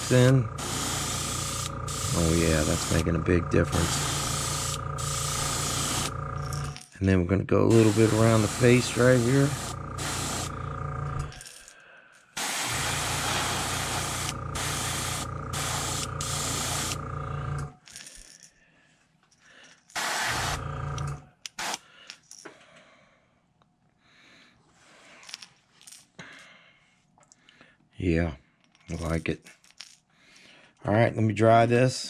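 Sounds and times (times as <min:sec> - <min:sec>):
airbrush hissing: 0:00.0 - 0:06.2, 0:07.7 - 0:10.8, 0:12.4 - 0:17.0, 0:20.0 - 0:20.6.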